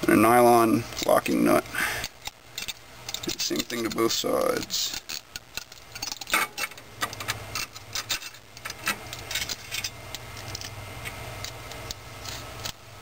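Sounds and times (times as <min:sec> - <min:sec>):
low steady hum: 0:00.0 - 0:13.0
metal bolts and nuts clinking: 0:02.6 - 0:10.8.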